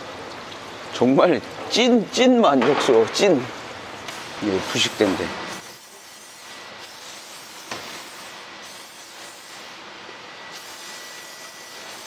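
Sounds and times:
aerosol can spraying: 4.1 - 9.8, 10.6 - 11.0, 11.7 - 12.0.

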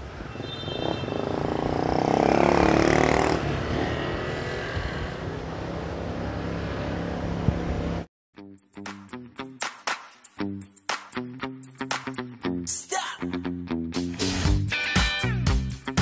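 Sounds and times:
road and wind noise: 0.0 - 8.1
vehicle engine revving: 1.1 - 8.1.

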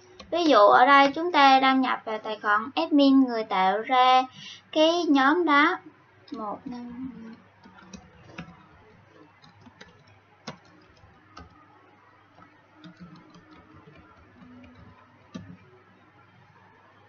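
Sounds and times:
faint low hum: 0.0 - 17.0
keyboard typing clicks: 7.3 - 11.7, 12.3 - 15.8.

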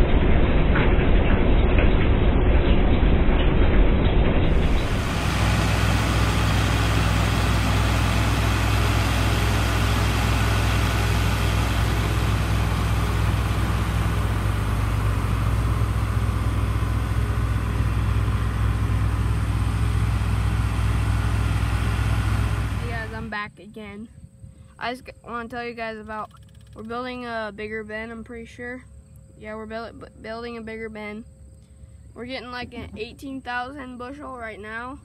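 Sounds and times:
vehicle engine idling: 4.5 - 23.4.

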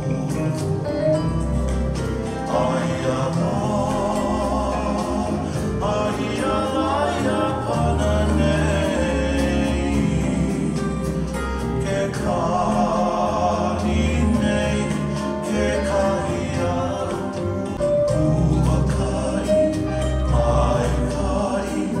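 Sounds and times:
instrumental backing: 0.0 - 22.0
person singing: 0.0 - 22.0.

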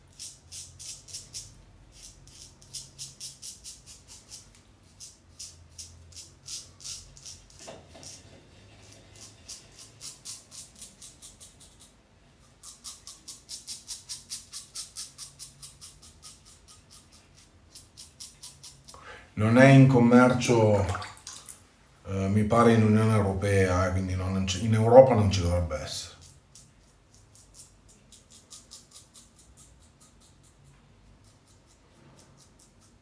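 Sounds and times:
razor scraping stubble: 0.0 - 19.0, 26.2 - 33.0.

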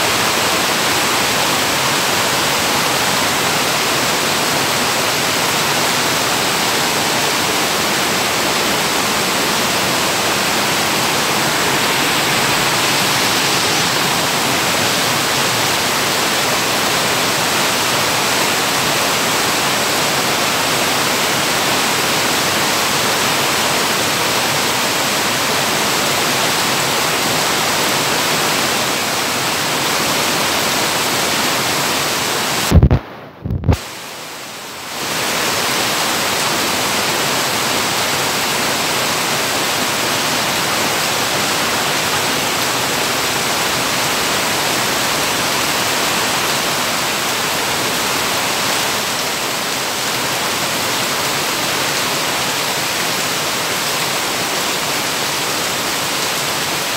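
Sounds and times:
heavy rain hissing: 0.0 - 56.9
brief thumps: 32.7 - 33.8.

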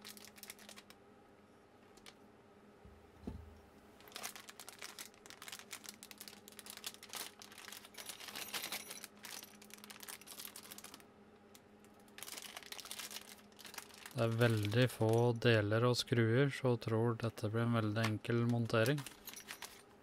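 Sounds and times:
plastic bag crinkling: 0.0 - 1.0, 4.0 - 15.5, 17.9 - 19.9
metal frame thump on workbench: 3.2 - 3.5.

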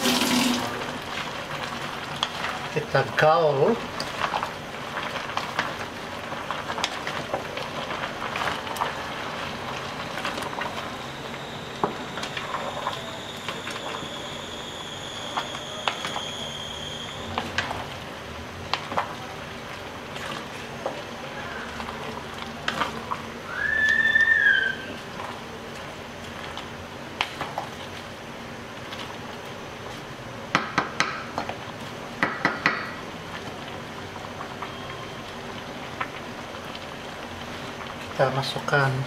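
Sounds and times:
faint high whistle-like tone: 10.8 - 17.5, 23.5 - 25.0, 34.6 - 35.3
whistle-like squeal: 10.9 - 17.5, 23.5 - 25.0.

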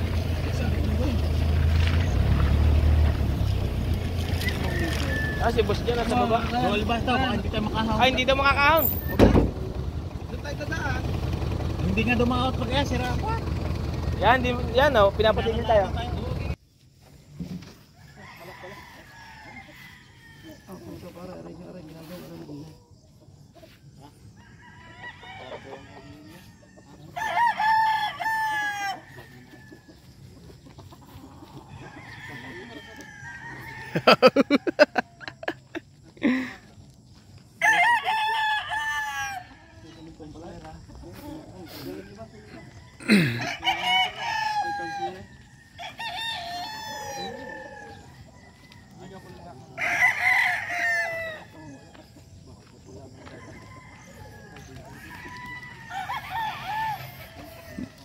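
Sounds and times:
faint rooster crowing: 4.3 - 6.2, 17.8 - 21.4, 23.5 - 35.6, 37.6 - 58.0
rooster crowing loudly: 4.4 - 5.8, 17.9 - 20.8, 24.4 - 29.9, 31.7 - 35.2, 37.6 - 40.0, 42.5 - 51.8, 53.4 - 58.0.

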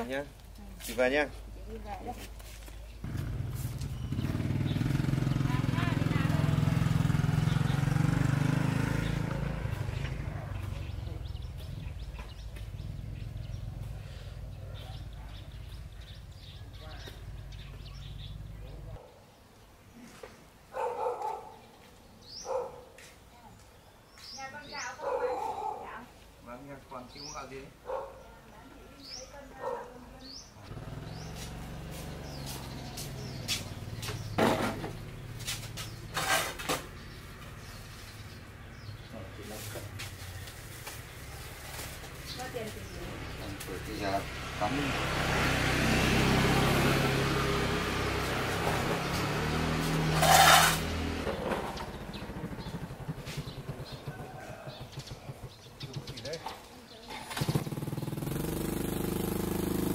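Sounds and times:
small birds chirping: 0.0 - 59.9
low engine rumble: 2.9 - 19.0, 30.6 - 56.4.

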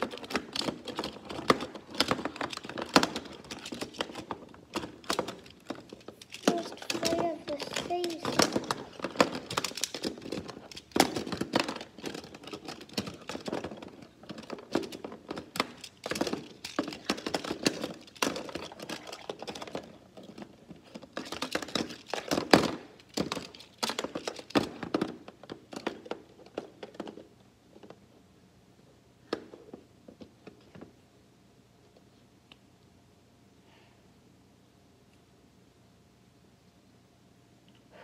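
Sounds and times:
plastic toy pieces clicking: 0.0 - 27.2.

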